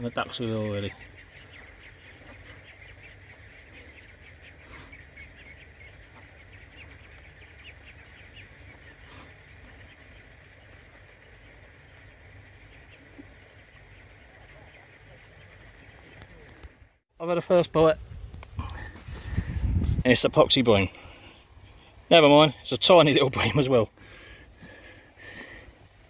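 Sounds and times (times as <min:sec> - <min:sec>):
ducklings chirping: 0:00.0 - 0:16.8
low steady rumble: 0:00.0 - 0:17.0.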